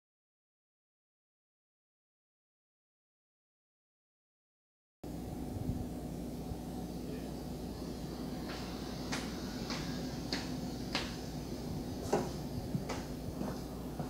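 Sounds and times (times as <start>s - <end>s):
steady low hum: 5.0s - 14.0s
footsteps on hard floor: 12.0s - 14.0s.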